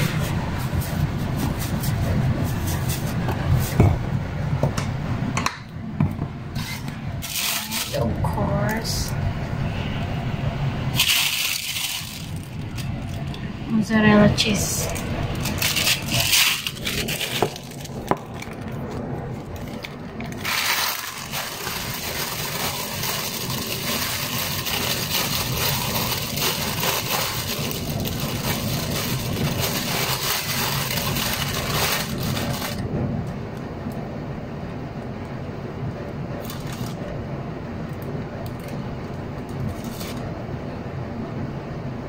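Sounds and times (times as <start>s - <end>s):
plastic bag rustling: 6.6s - 8.2s, 10.9s - 13.4s, 14.8s - 32.8s, 36.4s - 37.0s, 39.6s - 40.3s.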